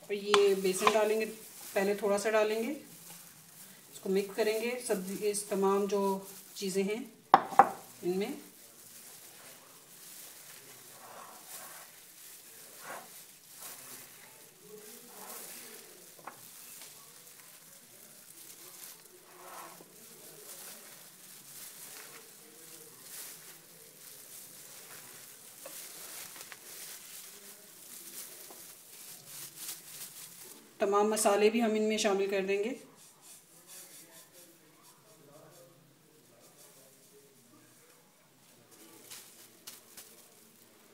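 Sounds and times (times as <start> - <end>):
plastic glove crinkling: 0.0 - 40.9
vegetable mixture rustling and crunching: 0.0 - 40.9.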